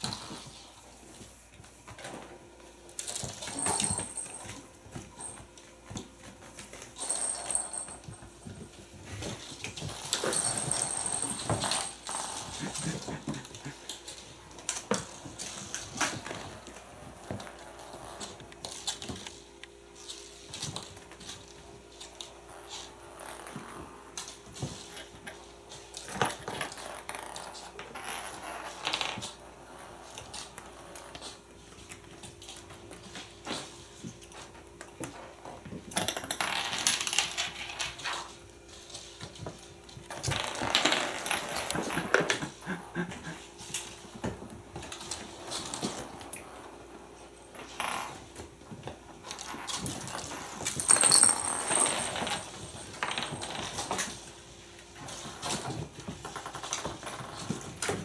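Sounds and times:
kittens scuffling: 0.0s - 58.0s
plastic balls rattling on wooden floor: 6.3s - 19.4s, 34.4s - 46.8s, 47.5s - 58.0s.

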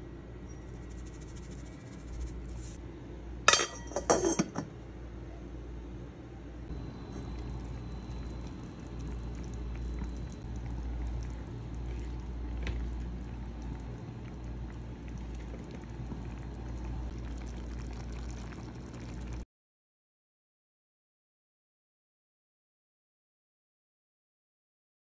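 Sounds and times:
liquid bubbling in a pot: 6.7s - 19.4s.

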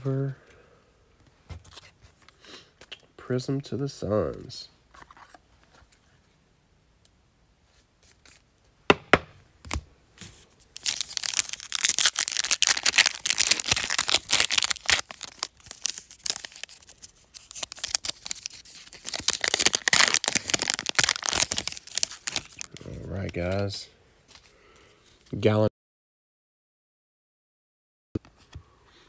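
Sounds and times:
foil card pack tearing: 10.8s - 22.8s.

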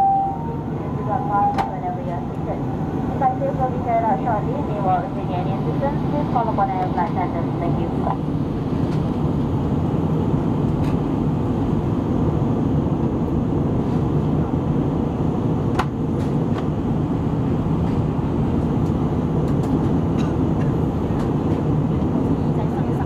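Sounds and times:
jet engine roar in cabin: 0.0s - 23.0s.

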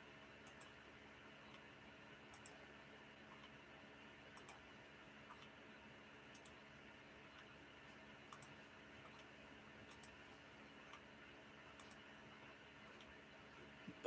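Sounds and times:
quiet room hum: 0.0s - 14.0s
faint mouse clicks: 0.4s - 0.8s, 2.3s - 2.6s, 4.3s - 4.6s, 6.3s - 6.6s, 8.3s - 10.2s, 11.8s - 12.0s.

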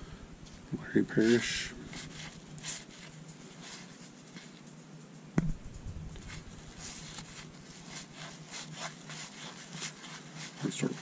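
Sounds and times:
cards rustling: 1.2s - 4.8s
sharp knock: 5.4s - 5.7s.

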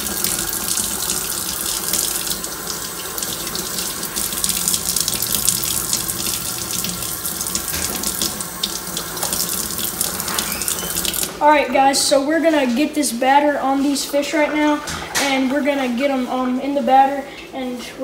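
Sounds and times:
faucet running into metal sink: 0.0s - 11.4s.

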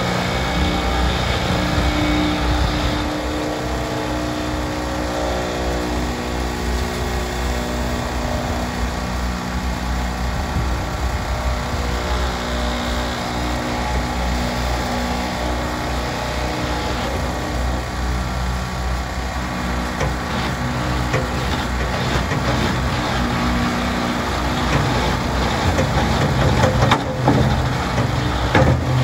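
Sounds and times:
generator running: 0.0s - 29.0s
vibratory motors humming: 0.0s - 29.0s
wheel loader diesel engine running: 0.0s - 29.0s.

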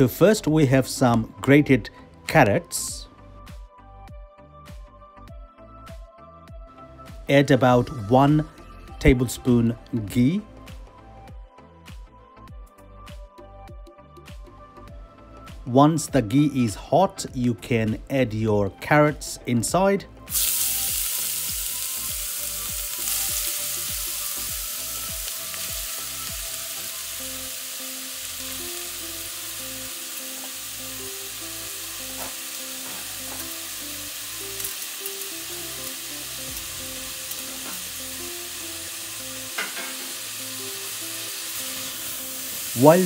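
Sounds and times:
carrots sizzling in fat: 20.3s - 43.0s.

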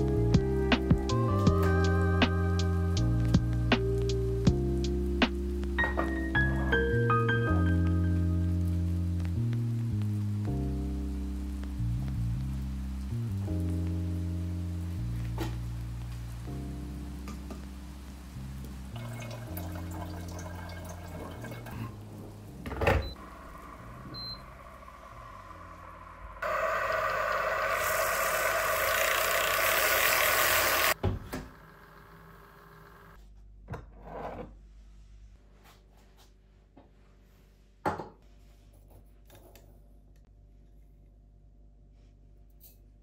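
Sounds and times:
milk frother whirring: 23.2s - 33.2s.

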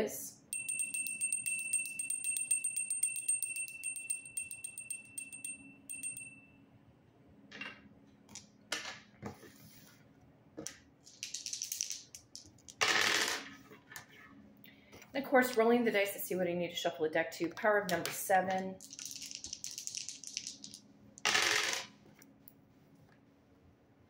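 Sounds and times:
handbell ringing: 0.5s - 6.6s.

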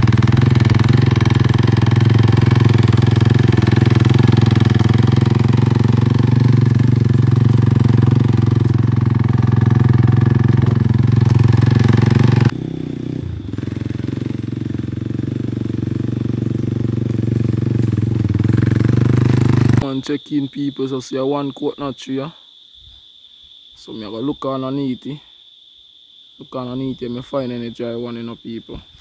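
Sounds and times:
motorcycle engine running: 0.0s - 19.9s.

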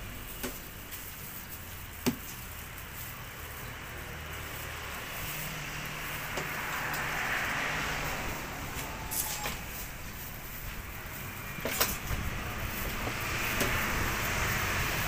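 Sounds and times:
hiss: 0.0s - 15.0s.

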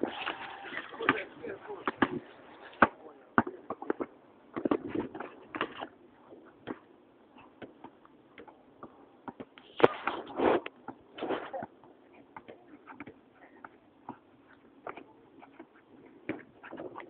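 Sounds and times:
basketball bouncing on asphalt: 1.0s - 2.2s, 2.8s - 5.9s, 6.6s - 6.9s, 7.6s - 9.6s, 11.6s - 16.9s.

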